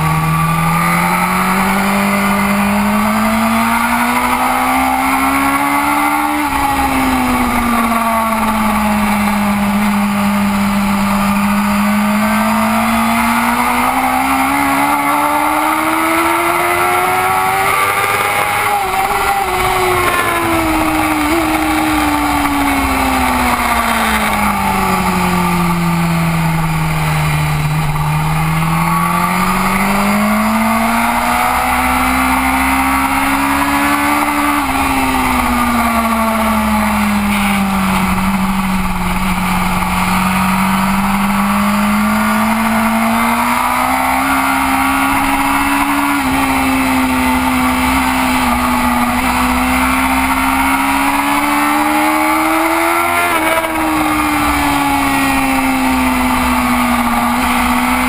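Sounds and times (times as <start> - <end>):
motorcycle engine revving: 0.0 - 58.0
heavy wind rush: 15.4 - 28.5.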